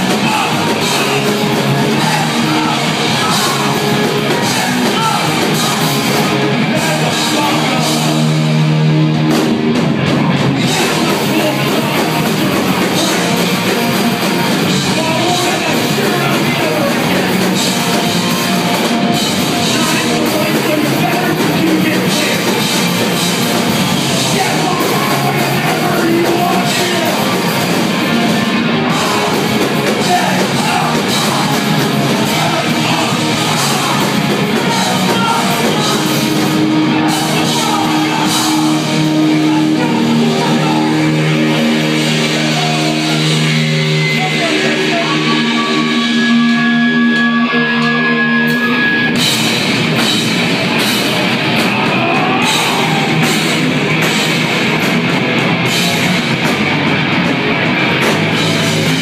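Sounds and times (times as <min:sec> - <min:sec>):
person singing into microphone: 0:00.0 - 0:08.5, 0:28.8 - 0:49.1
punk band playing live: 0:00.0 - 0:59.0.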